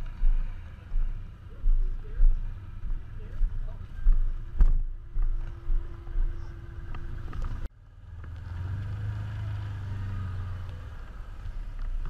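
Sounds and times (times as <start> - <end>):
low engine drone: 0.0 - 8.3
knocks and thumps over rough ground: 0.0 - 8.5
utility vehicle engine running: 0.0 - 12.0.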